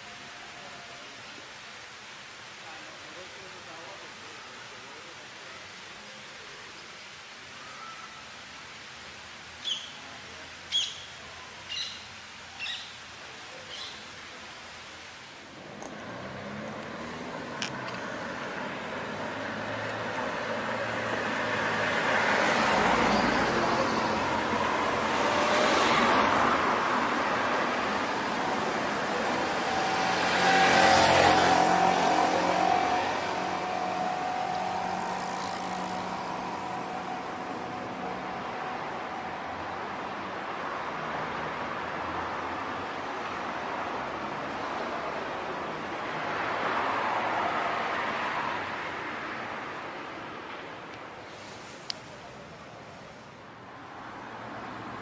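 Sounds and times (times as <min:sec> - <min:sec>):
steady background hiss: 0:00.0 - 0:55.0
car driving past: 0:15.4 - 0:42.6
motorbike passing: 0:15.4 - 0:42.8.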